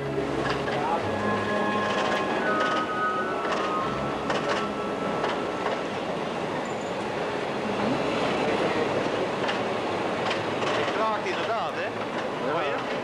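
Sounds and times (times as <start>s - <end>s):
rail joint clicks: 0.0s - 1.0s, 1.8s - 7.2s, 7.8s - 13.0s
train wheels rumbling on rails: 0.0s - 13.0s.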